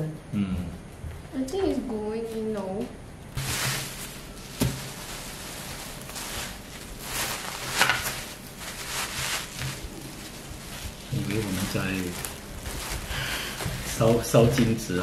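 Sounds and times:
plastic bags rustling: 3.3 - 15.0.

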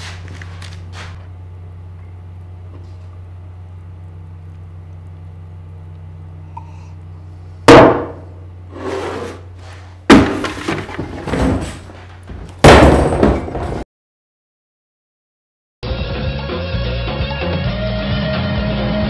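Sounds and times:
low room hum: 0.0 - 13.8
metal chair pushed back: 8.7 - 9.8.

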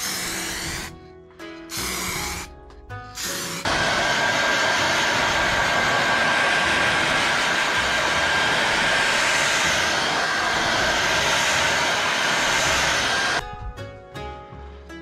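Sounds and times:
hair dryer blowing: 3.2 - 13.4.

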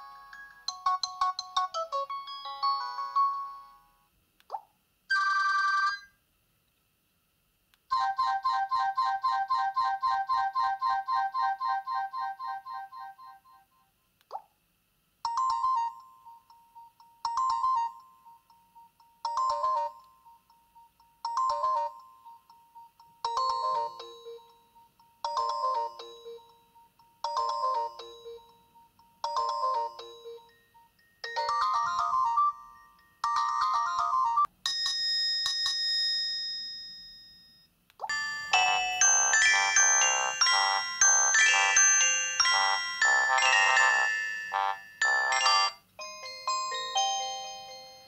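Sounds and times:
electronic ringtone chime: 0.0 - 3.9, 7.9 - 13.7, 15.3 - 48.0
long ringing tone: 36.6 - 45.8.

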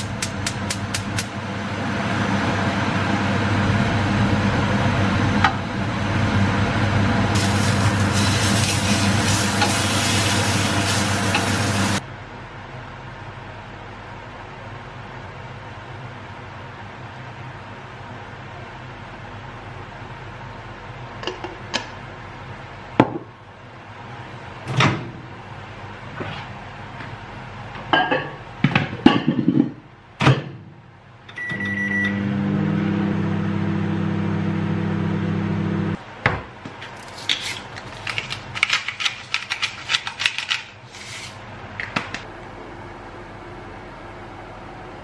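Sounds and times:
microwave humming: 0.0 - 12.0, 30.2 - 37.0
microwave beeping: 31.3 - 36.0
pepper grinder clicking: 37.0 - 40.7.

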